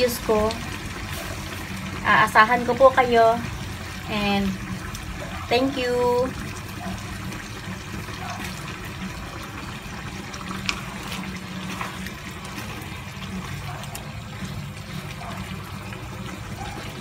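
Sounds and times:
sauce bubbling in a frying pan: 0:00.0 - 0:17.0.

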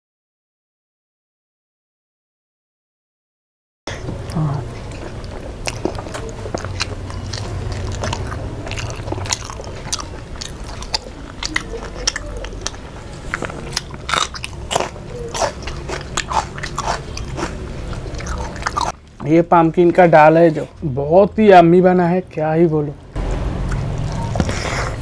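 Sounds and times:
chewing with lip smacks: 0:03.9 - 0:19.0, 0:23.0 - 0:25.0.

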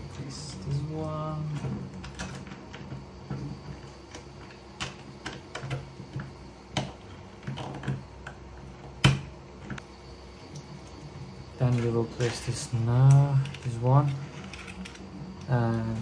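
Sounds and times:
plastic parts clicking and tapping: 0:00.5 - 0:09.8.

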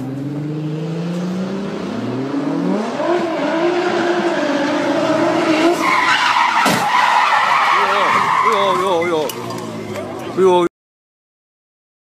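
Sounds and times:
car engine accelerating hard: 0:00.0 - 0:06.6.

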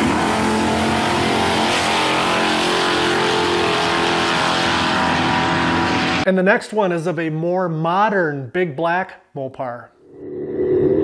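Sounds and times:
racing car engines at full throttle: 0:00.0 - 0:06.2
loud rushing noise: 0:10.1 - 0:11.0.

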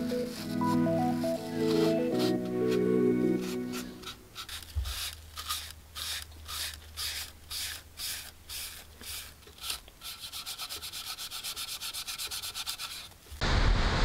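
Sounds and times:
background music: 0:00.0 - 0:04.2
hand rubbing on surface: 0:00.0 - 0:05.1.

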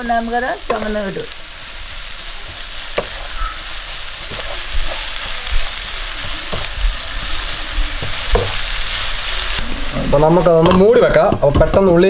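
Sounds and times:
onions sizzling in hot oil: 0:00.0 - 0:12.0
spatula knocking and scraping pan: 0:02.5 - 0:03.6, 0:04.2 - 0:08.8, 0:10.5 - 0:12.0.

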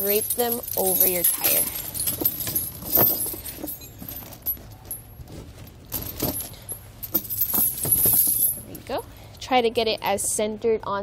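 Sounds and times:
chain links clinking: 0:00.0 - 0:09.0.

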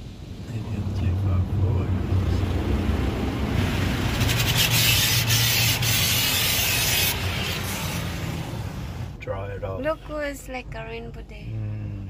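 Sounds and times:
cloth brushes rubbing car body: 0:04.1 - 0:08.4
water and soap spray hissing: 0:04.1 - 0:08.5.

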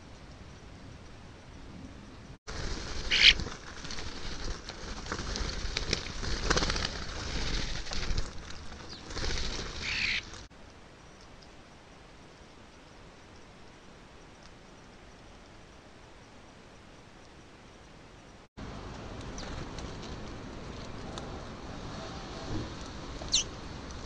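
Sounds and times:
wing flutters: 0:02.5 - 0:10.5, 0:18.6 - 0:24.0
starlings chattering calls: 0:03.0 - 0:03.4, 0:09.8 - 0:10.4, 0:23.2 - 0:23.5.

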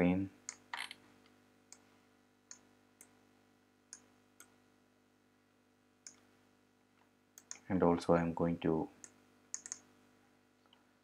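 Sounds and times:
faint steady hum: 0:00.0 - 0:11.0
computer mouse clicks: 0:06.0 - 0:06.3, 0:07.4 - 0:07.7, 0:09.0 - 0:09.9.

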